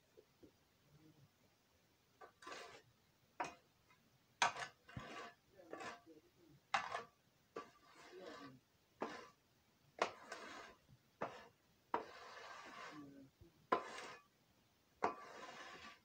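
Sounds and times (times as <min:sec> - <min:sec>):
shovel scraping floor: 0:02.2 - 0:03.6, 0:04.4 - 0:06.0, 0:06.8 - 0:09.4, 0:10.0 - 0:13.1, 0:13.7 - 0:14.3, 0:15.0 - 0:16.0.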